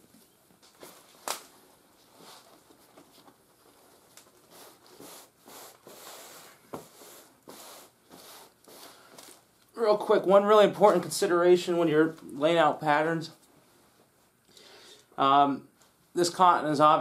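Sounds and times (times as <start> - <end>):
hand brushing fabric: 4.4 - 9.0.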